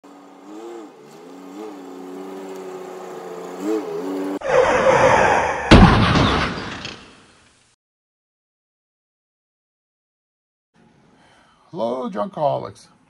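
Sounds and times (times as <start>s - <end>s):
vehicle engine revving: 0.0s - 4.7s
heavy slam: 5.7s - 7.0s.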